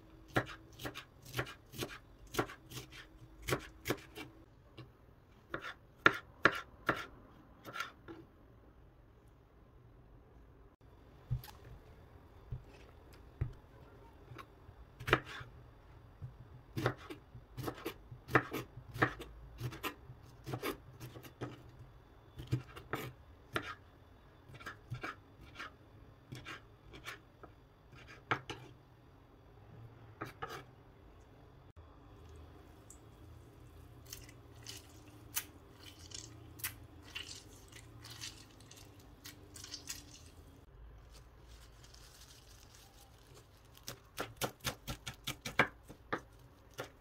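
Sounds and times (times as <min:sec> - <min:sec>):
knife cutting on wooden board: 0:00.3 - 0:04.3, 0:30.2 - 0:30.7.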